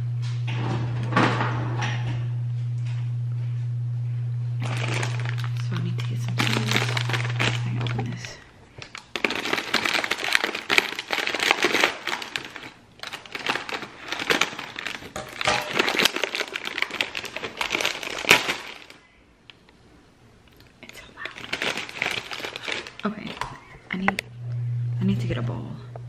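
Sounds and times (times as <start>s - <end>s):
plastic packaging crinkling: 4.6s - 19.6s, 20.5s - 23.8s.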